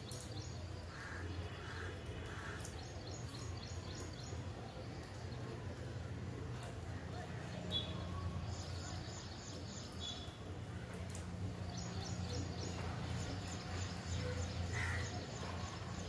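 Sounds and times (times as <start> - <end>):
rain hiss: 0.0 - 16.0.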